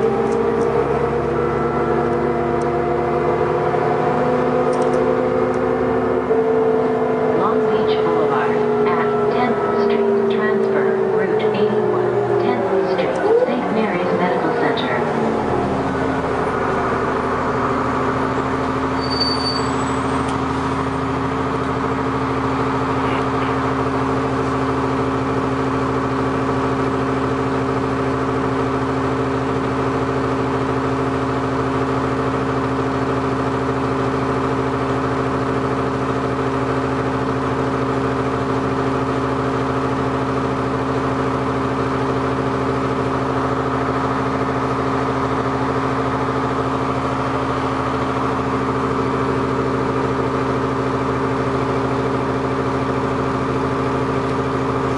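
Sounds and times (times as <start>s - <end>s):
diesel bus engine idling: 0.0s - 54.9s.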